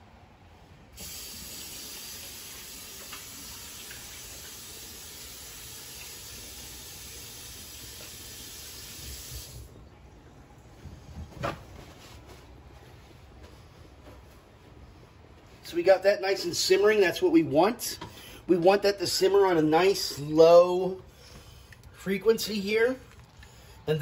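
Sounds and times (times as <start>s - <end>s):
water hissing: 1.0s - 9.7s.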